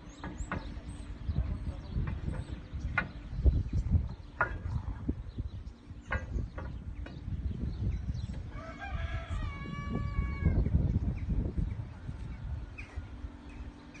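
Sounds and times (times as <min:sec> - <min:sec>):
low rumble: 0:00.7 - 0:14.0
rooster crowing: 0:08.5 - 0:10.6.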